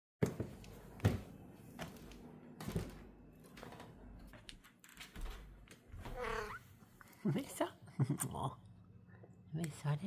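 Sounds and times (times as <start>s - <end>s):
footsteps on wooden floor: 0.2s - 6.5s.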